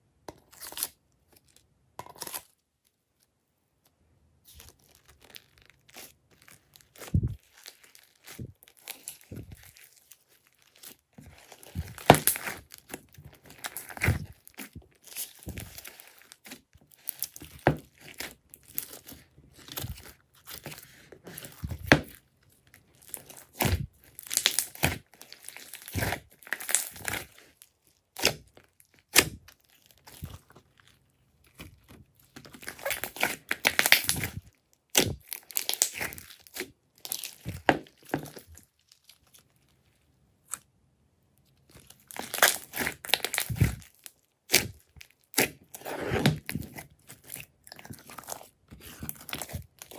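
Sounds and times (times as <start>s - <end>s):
slime squeezed by hand: 41.8s - 49.9s.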